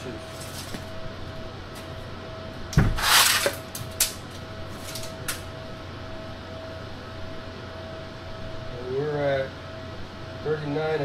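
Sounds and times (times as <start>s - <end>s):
faint steady hum: 0.0s - 11.0s
tape measure thump: 2.8s - 3.6s
tape measure blade rasping: 3.0s - 3.6s.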